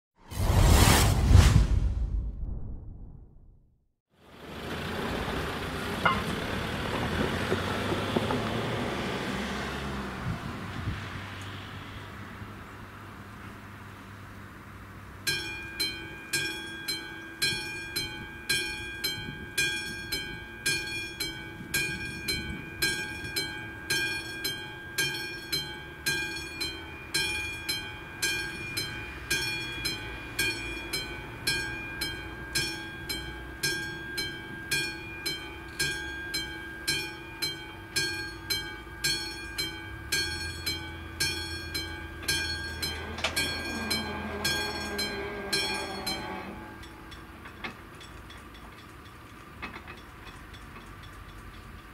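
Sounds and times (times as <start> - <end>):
crossing warning bell ringing: 6.0 - 6.5, 15.2 - 51.9
barrier motor whine: 26.6 - 47.5.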